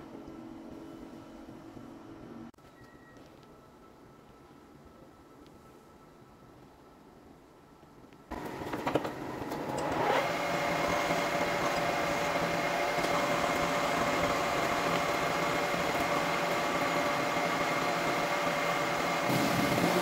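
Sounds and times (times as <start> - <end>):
lathe motor and gear whine: 8.3 - 20.0.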